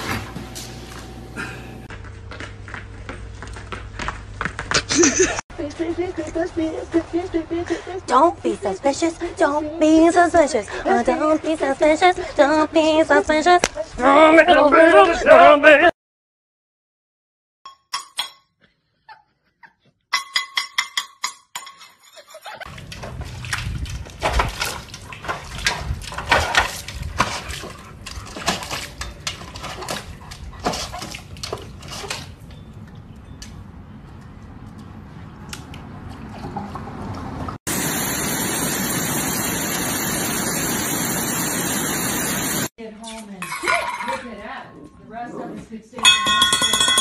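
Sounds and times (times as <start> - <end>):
dog splashing in metal water bowl: 22.7 - 32.3
water pouring over weir: 37.7 - 42.7.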